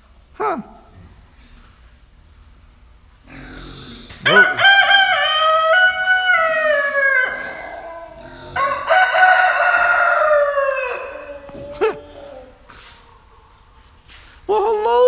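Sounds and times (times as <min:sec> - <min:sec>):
rooster crowing: 0:04.3 - 0:12.7.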